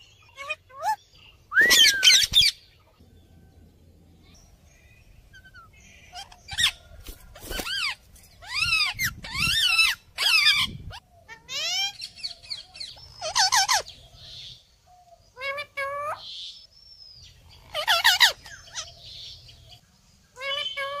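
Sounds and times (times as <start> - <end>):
parakeets screeching: 0.1 - 1.0, 1.6 - 2.9, 5.3 - 13.9, 17.6 - 19.0, 20.4 - 21.0.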